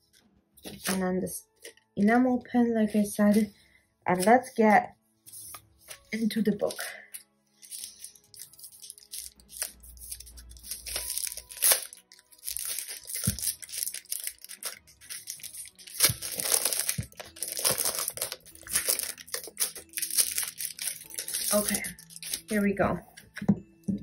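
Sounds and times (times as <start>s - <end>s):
packaging crinkling and tearing: 5.5s - 22.6s.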